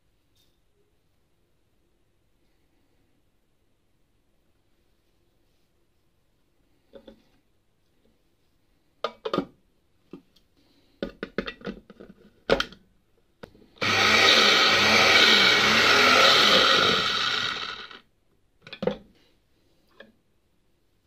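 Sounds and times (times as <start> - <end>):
mini chopper motor whirring: 13.8 - 18.0.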